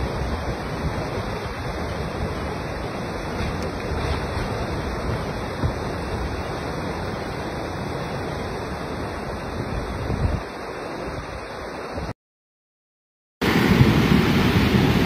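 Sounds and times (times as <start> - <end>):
rushing river roar: 0.0 - 12.1, 13.4 - 15.0
wind buffeting microphone: 9.7 - 12.1.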